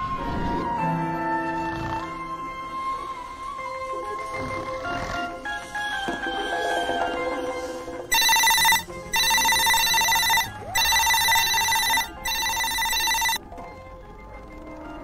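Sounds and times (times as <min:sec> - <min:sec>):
telephone ringing: 0:08.1 - 0:13.4.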